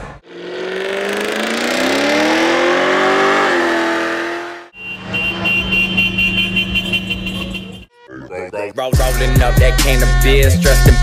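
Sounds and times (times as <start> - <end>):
car engine revving: 0.0 - 7.6
music with a beat: 8.9 - 11.0.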